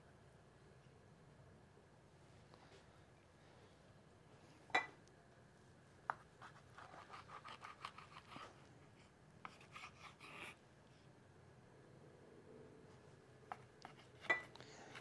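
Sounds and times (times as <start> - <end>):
knife cutting on cutting board: 6.4 - 8.5.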